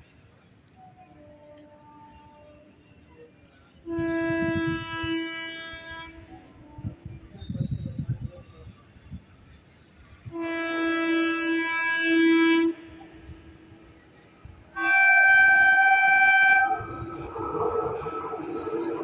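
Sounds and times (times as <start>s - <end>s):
train rumbling: 0.2s - 19.0s
locomotive horn blasts: 3.8s - 7.6s, 10.2s - 13.8s, 14.7s - 19.0s.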